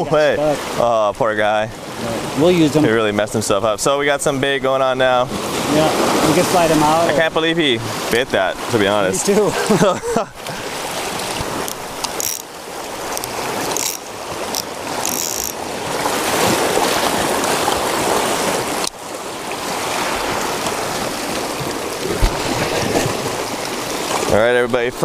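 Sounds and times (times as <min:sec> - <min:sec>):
small waves washing on rocks: 0:04.4 - 0:09.8, 0:10.4 - 0:25.0
hands handling fishing gear: 0:10.1 - 0:15.6
sharp crackles: 0:11.6 - 0:12.5.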